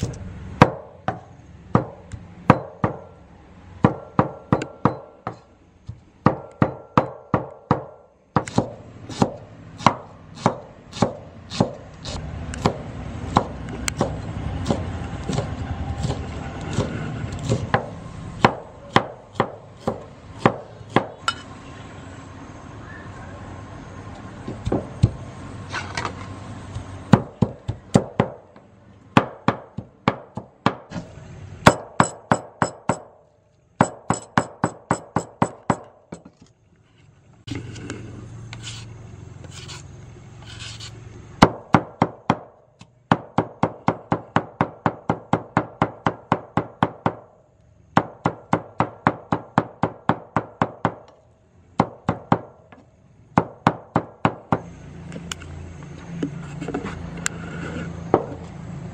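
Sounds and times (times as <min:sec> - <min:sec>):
cleaver chopping on wooden board: 0:06.2 - 0:21.2.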